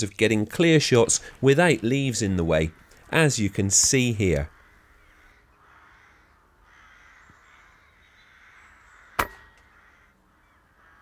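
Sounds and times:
crows cawing: 2.5 - 3.4, 4.0 - 11.0
air rifle shot: 9.1 - 9.6.

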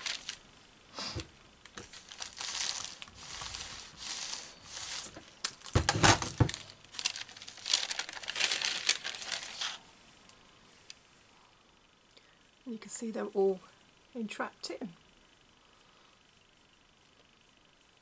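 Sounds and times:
paper rustling and crinkling: 0.0 - 0.4, 1.7 - 9.8
iron sliding over paper: 0.0 - 5.3.

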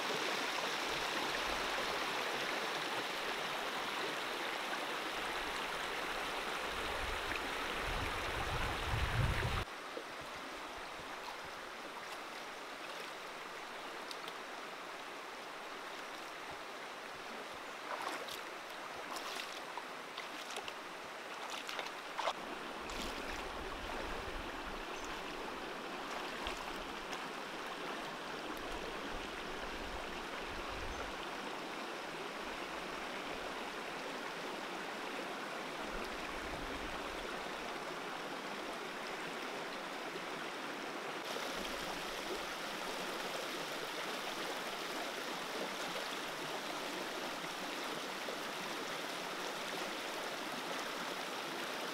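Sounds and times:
stream flowing over rocks: 0.0 - 51.9
feet splashing through water: 17.8 - 24.1.

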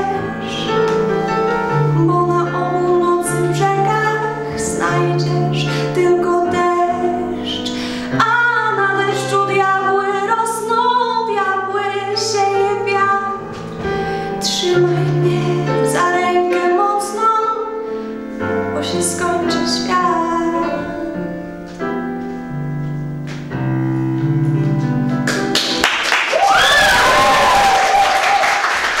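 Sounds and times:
instrumental backing music: 0.0 - 26.4
applause: 25.2 - 29.0.

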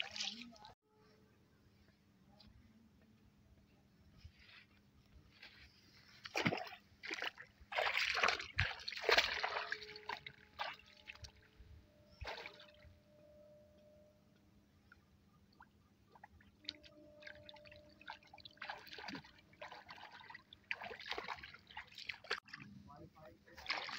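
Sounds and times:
feet splashing in shallow water: 6.2 - 11.3, 12.2 - 12.8, 16.8 - 22.6, 23.6 - 23.9.

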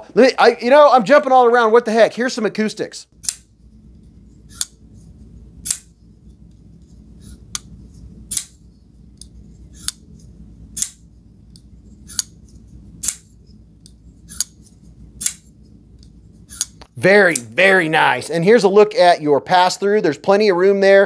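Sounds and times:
flipper knife clicking open and shut: 3.2 - 3.5, 4.5 - 4.8, 5.6 - 5.9, 8.3 - 8.6, 9.2 - 10.0, 10.7 - 11.0, 12.1 - 12.4, 13.0 - 14.6, 15.2 - 15.5, 16.5 - 16.8.

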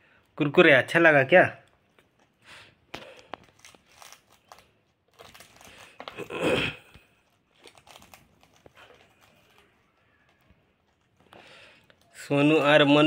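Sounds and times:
parakeets crunching snack: 1.8 - 12.2.

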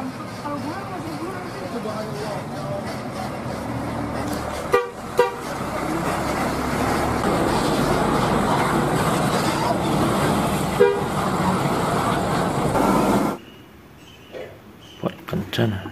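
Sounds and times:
bus engine running: 0.0 - 13.4
traffic: 0.0 - 15.9
bus horn toots: 4.7 - 5.6, 10.7 - 11.2.

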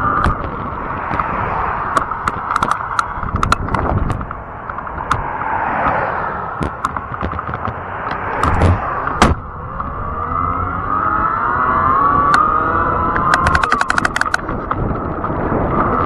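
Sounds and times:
bike tyres rushing: 0.0 - 11.9, 12.8 - 16.0
rattling clicks and knocks: 1.9 - 6.0, 6.6 - 9.4, 13.2 - 16.0.

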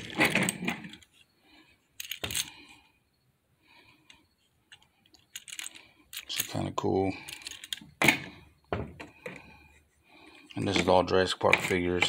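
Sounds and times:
plastic toys clattering: 0.0 - 1.2, 2.0 - 2.8, 4.6 - 8.4, 10.5 - 12.0.

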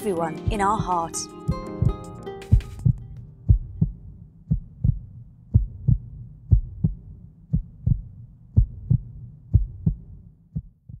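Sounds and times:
heartbeat thumps: 0.4 - 11.0
low hum: 2.7 - 10.6.

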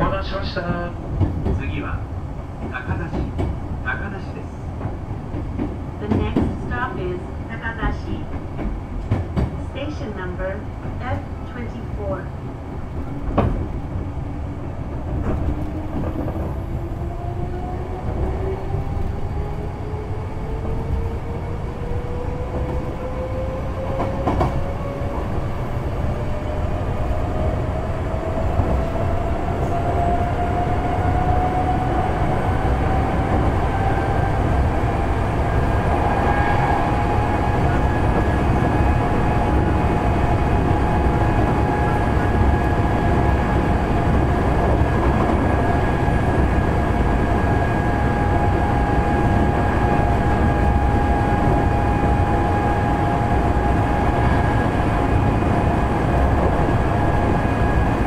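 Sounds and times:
wheels rumbling on track: 0.0 - 58.0
rail-joint clacks: 0.6 - 1.8, 2.6 - 3.6, 4.8 - 6.8, 7.8 - 9.6, 13.2 - 13.8.

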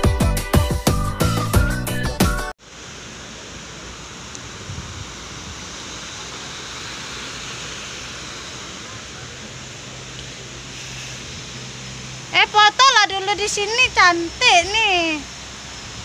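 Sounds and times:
background music: 0.0 - 2.5
river water rushing: 2.6 - 14.4.

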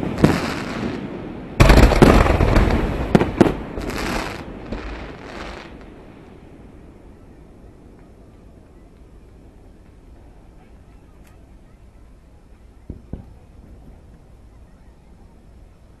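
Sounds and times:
fireworks booming and banging: 0.0 - 5.9, 12.8 - 14.3.

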